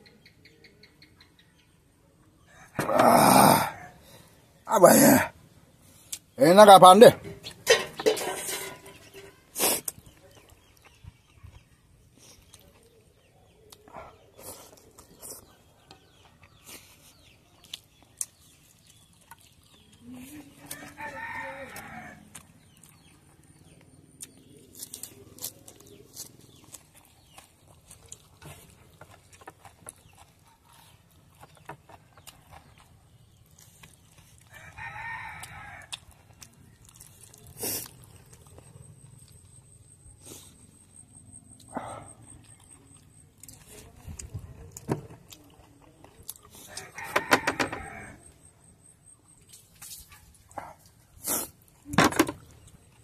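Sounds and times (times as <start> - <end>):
rooster crowing: 20.7 - 22.4, 46.7 - 48.4.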